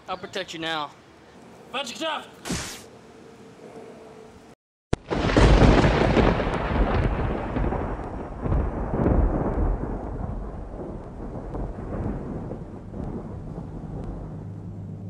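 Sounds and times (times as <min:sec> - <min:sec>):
thunder crack: 0:04.9 - 0:15.0
rolling thunder rumble: 0:05.0 - 0:15.0.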